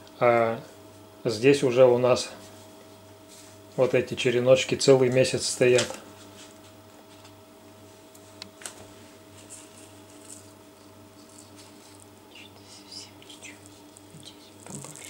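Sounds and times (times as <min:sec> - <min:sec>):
plastic gloves and bag rustling: 0:09.0 - 0:15.0
low hum: 0:09.4 - 0:15.0.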